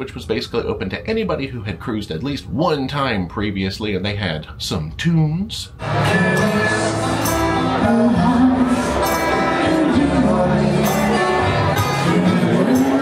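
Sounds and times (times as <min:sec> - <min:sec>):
person singing: 0:05.8 - 0:13.0
strummed guitar: 0:05.8 - 0:13.0.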